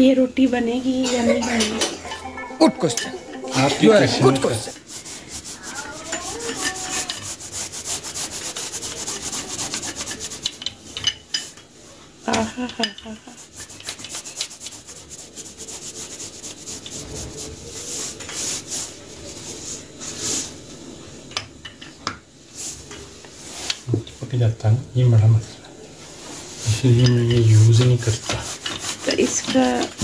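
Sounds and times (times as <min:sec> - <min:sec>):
hands rubbing dough on counter: 0:03.6 - 0:10.9, 0:12.5 - 0:20.6, 0:26.0 - 0:30.0.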